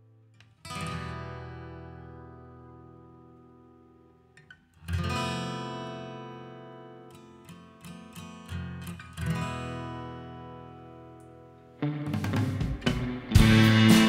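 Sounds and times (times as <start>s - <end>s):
acoustic guitar strummed chords: 4.9s - 14.0s.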